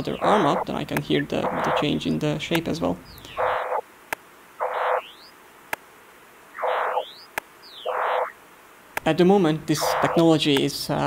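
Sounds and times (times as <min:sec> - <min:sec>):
sweeps of electronic tones: 0:01.4 - 0:01.9, 0:03.3 - 0:03.8, 0:04.6 - 0:05.3, 0:06.6 - 0:08.4, 0:09.8 - 0:10.2
sharp single clicks: 0:07.3 - 0:07.5.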